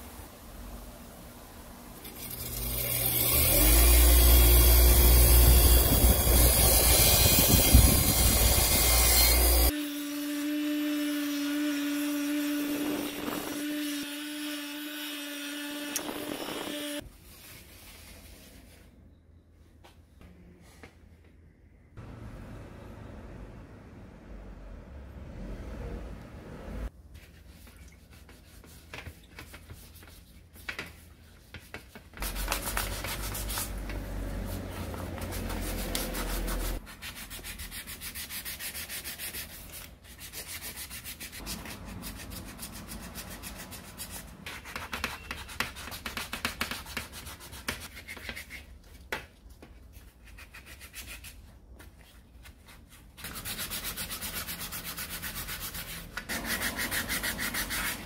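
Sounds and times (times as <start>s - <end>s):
sandpaper scratching plastic: 4.8s - 9.8s, 28.2s - 48.7s, 53.2s - 58.0s.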